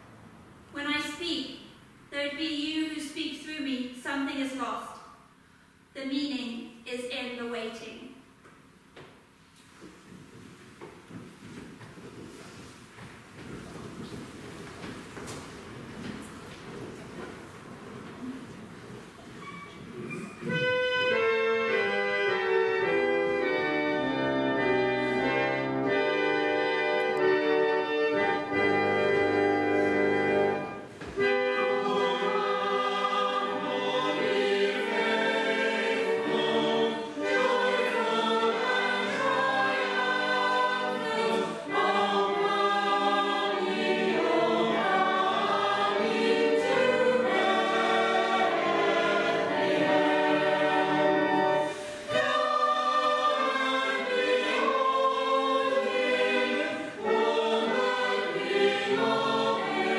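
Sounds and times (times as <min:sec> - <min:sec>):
choir singing a carol: 0:20.4 - 0:59.9
organ chord: 0:20.6 - 0:59.9.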